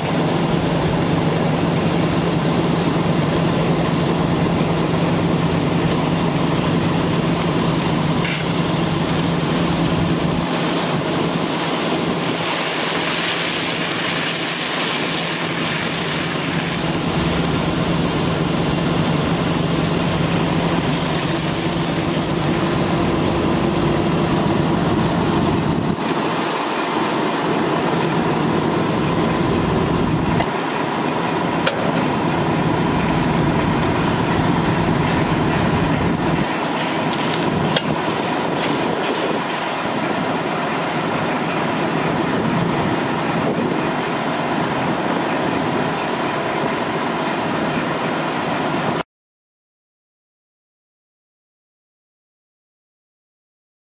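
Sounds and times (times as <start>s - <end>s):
diesel engine running: 0.0s - 49.0s
water hissing from hose nozzle: 6.6s - 23.5s.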